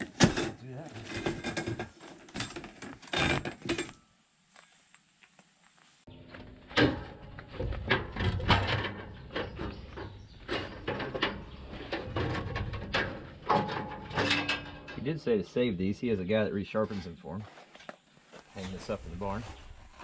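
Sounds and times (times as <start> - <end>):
metal blade clanking and scraping: 10.5 - 15.0.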